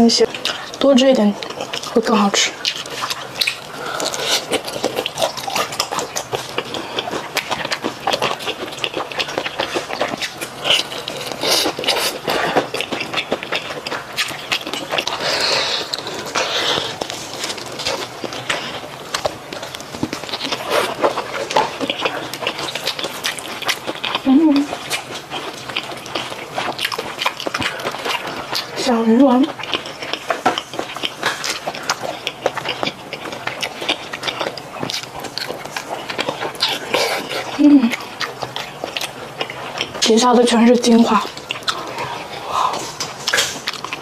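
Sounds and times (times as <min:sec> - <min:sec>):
wet sticky chewing: 0:00.0 - 0:44.0
lip smacks and mouth clicks: 0:41.3 - 0:44.0.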